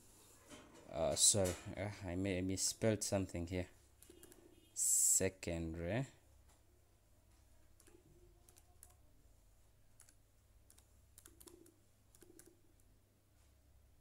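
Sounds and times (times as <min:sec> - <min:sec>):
laptop keyboard typing: 0:04.0 - 0:04.5, 0:07.7 - 0:09.0, 0:09.9 - 0:12.9.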